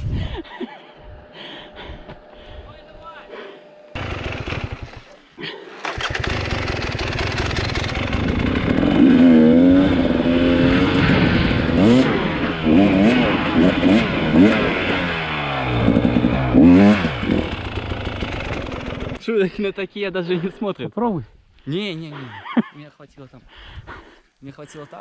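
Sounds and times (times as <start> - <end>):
dirt bike engine revving: 3.9 - 5.2, 5.8 - 19.2.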